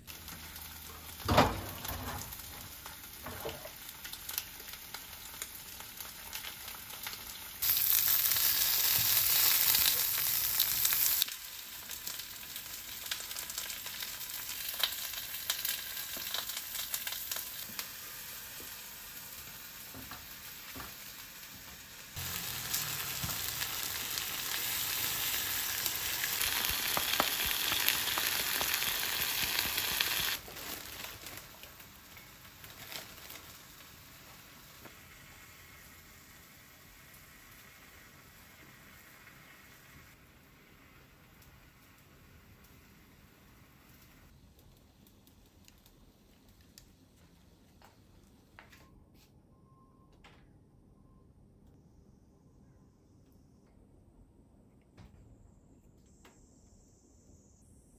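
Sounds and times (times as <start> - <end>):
food sizzling in a frying pan: 0.0 - 44.4.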